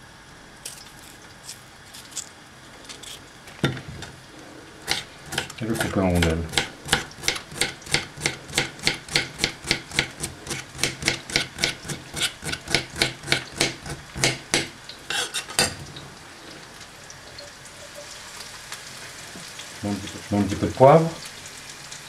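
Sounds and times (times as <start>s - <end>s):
food sizzling in hot oil: 3.3s - 22.0s
knife chopping on marble board: 4.9s - 14.8s.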